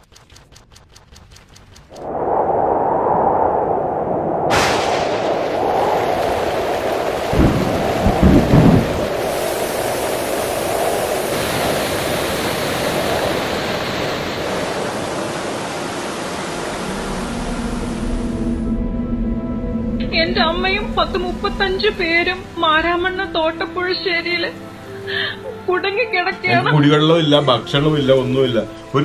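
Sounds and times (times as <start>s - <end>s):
thunder rumbling: 1.9s - 24.3s
heavy rain: 4.5s - 18.7s.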